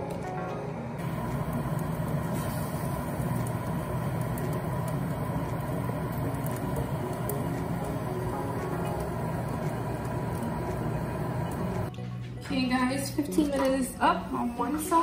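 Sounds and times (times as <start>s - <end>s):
soft background music: 0.0s - 2.8s, 5.5s - 15.0s
air fryer fan whirring: 0.0s - 11.9s.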